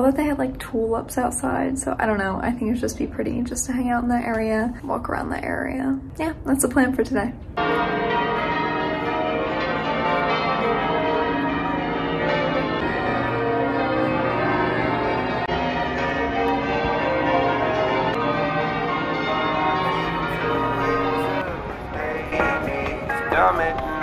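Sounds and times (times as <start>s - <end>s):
church bells ringing: 7.6s - 24.0s.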